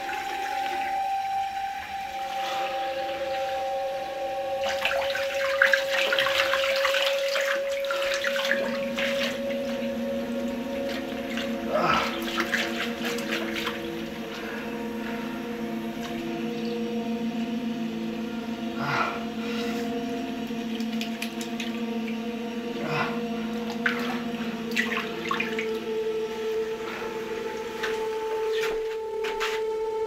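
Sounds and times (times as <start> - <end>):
steady humming tone: 0.0 - 30.0
hands splashing in water: 4.6 - 9.5, 10.8 - 14.0.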